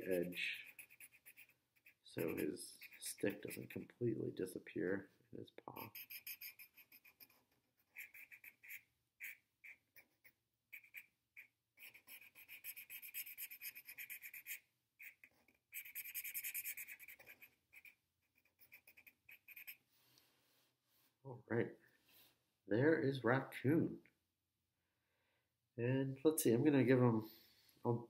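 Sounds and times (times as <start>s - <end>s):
marker rubbing on paper: 0.0s - 4.0s, 5.8s - 19.9s.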